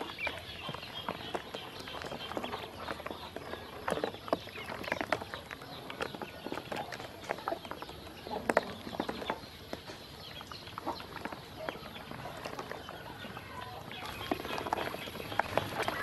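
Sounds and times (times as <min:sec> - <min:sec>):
ducklings peeping: 0:00.0 - 0:16.0
bills tapping in water tray: 0:14.0 - 0:16.0.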